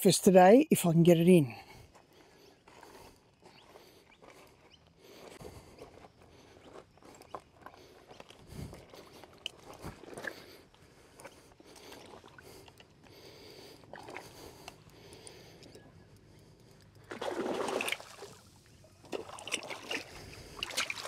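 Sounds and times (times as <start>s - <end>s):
footsteps crunching on rubble: 2.7s - 11.2s.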